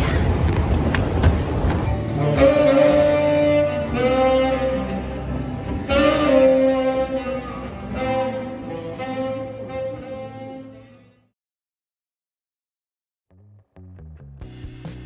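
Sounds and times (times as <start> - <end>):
instrumental music: 1.9 - 11.0.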